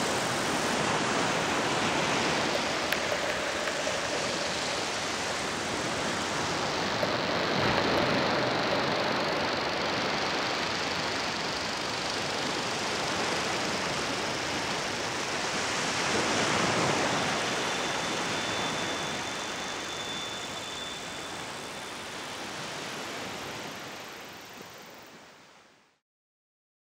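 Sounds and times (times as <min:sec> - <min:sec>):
waves breaking on sand beach: 0:00.0 - 0:20.1.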